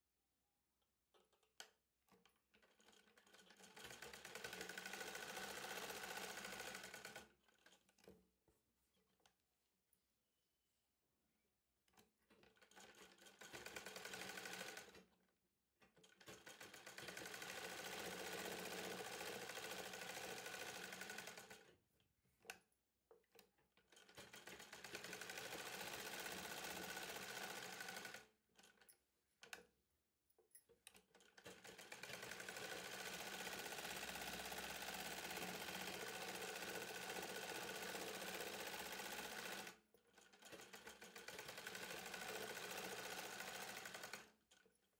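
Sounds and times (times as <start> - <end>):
electric sewing machine stitching: 2.8 - 7.8, 12.6 - 15.0, 16.1 - 21.7, 23.9 - 28.3, 31.2 - 44.5.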